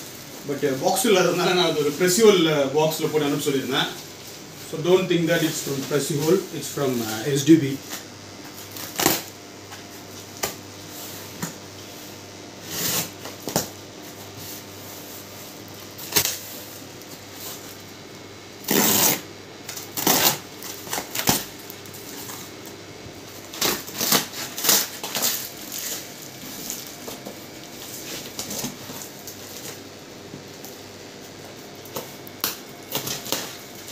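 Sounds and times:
tape ripping: 8.7 - 9.3, 18.6 - 22.4, 23.4 - 27.2, 31.9 - 33.6
knife cutting tape and cardboard: 18.6 - 21.5, 23.6 - 26.0.

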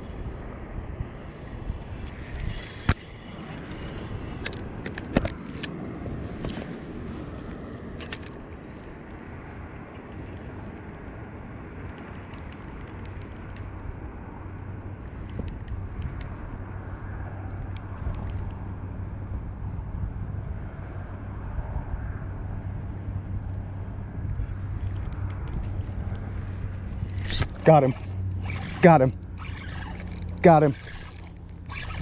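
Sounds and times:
spinning reel clicks: 27.1 - 32.0.

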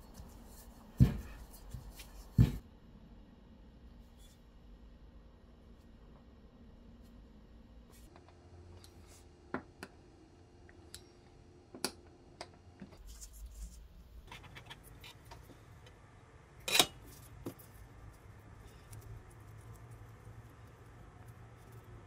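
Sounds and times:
hands rustling dough: 0.0 - 2.6.

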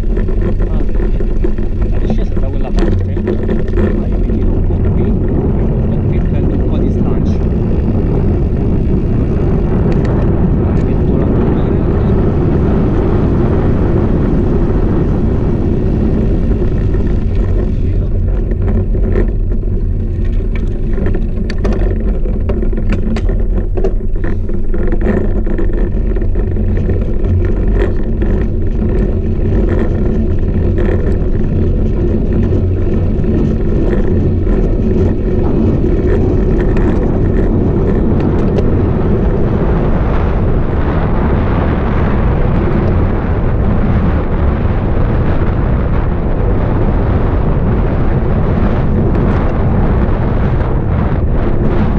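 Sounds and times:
tyre noise: 0.0 - 51.9
wind rumble: 0.0 - 51.9
clicks and knocks: 18.3 - 31.2.

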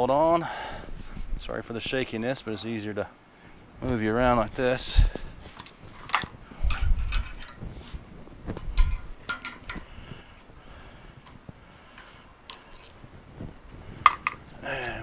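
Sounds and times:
metallic tool clicks and knocks: 8.8 - 9.9.

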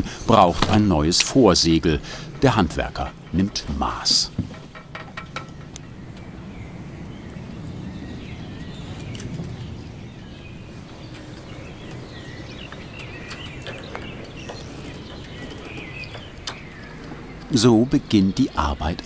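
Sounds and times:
light clicks and knocks: 0.0 - 6.4, 10.9 - 19.0
birds chirping: 0.0 - 19.0.

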